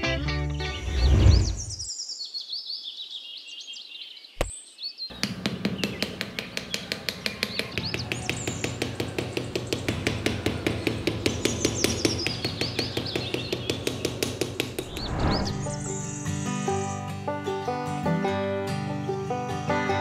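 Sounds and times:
birds chirping: 0:00.4 - 0:17.1
rising whoosh: 0:00.8 - 0:01.8, 0:14.8 - 0:16.1.

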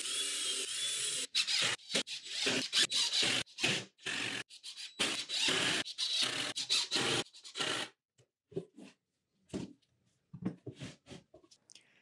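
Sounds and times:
cordless drill driving a screw: 0:00.0 - 0:07.9.

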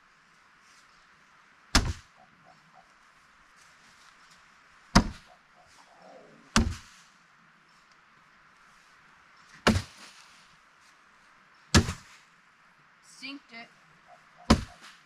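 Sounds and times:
bean bags thudding on boards: 0:09.6 - 0:10.0.

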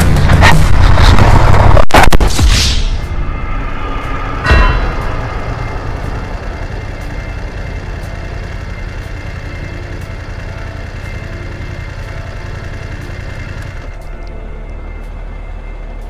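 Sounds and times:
motorcycle engine idling: 0:04.9 - 0:14.4.

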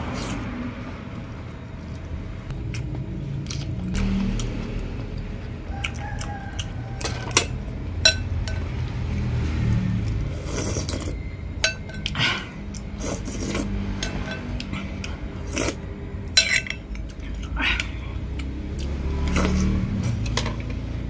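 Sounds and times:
steady low rumble: 0:00.0 - 0:20.6.

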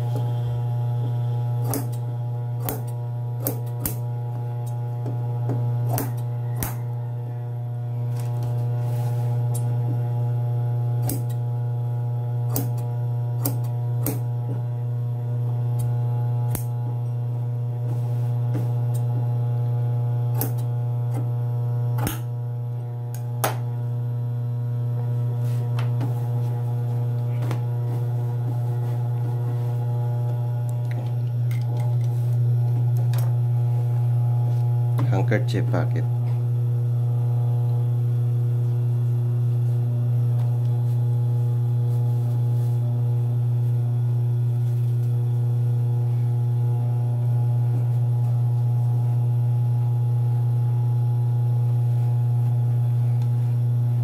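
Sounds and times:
sewing machine motor humming: 0:00.0 - 0:07.1, 0:08.0 - 0:14.7
scissors snipping fabric: 0:02.6 - 0:04.1, 0:11.0 - 0:11.4, 0:12.5 - 0:14.3.

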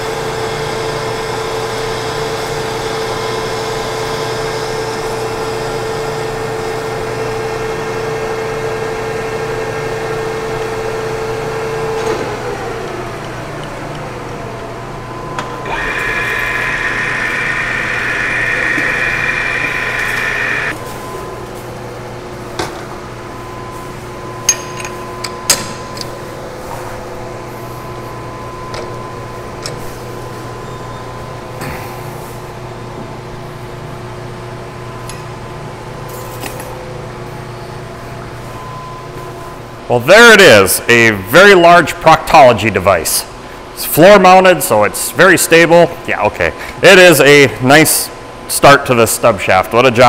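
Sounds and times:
steady machine hum: 0:00.0 - 0:36.1
lathe tool cutting hiss: 0:15.6 - 0:20.8.

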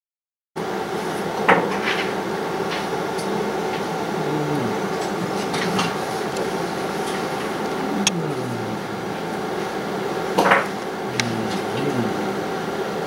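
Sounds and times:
equipment hum: 0:00.6 - 0:13.0.

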